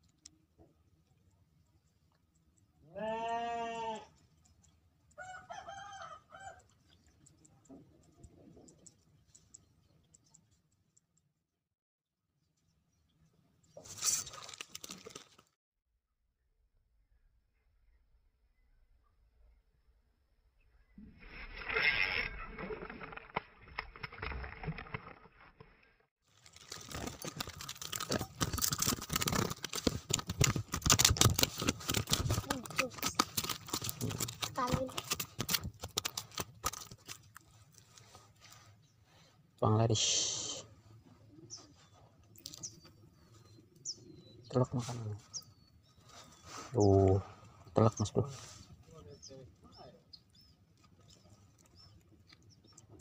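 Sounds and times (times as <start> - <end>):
rustling and crackling handling: 13.8 - 15.6, 26.3 - 39.3.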